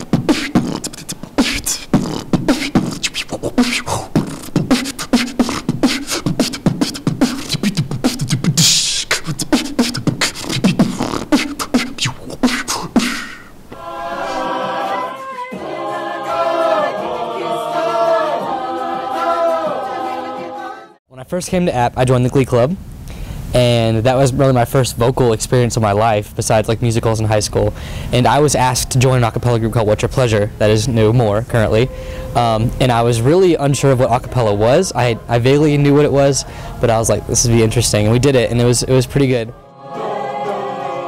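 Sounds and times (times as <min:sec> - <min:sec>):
man beatboxing: 0:00.0 - 0:13.6, 0:28.2 - 0:39.5
a cappella group singing: 0:13.7 - 0:21.0, 0:33.2 - 0:41.0.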